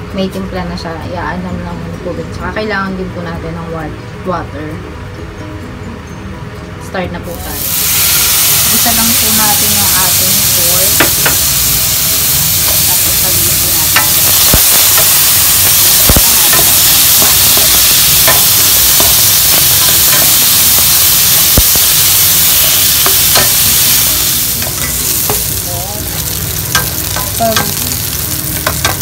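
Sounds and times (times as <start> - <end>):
meat sizzling in a pan: 7.3 - 29.0.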